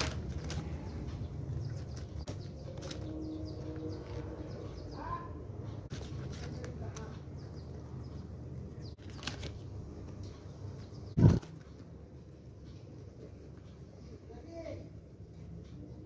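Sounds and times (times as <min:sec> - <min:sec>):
paper pages turning: 0:00.0 - 0:00.9, 0:01.8 - 0:03.2, 0:05.9 - 0:07.2, 0:09.0 - 0:10.3, 0:11.2 - 0:11.8
page-flip snaps: 0:09.0 - 0:09.6.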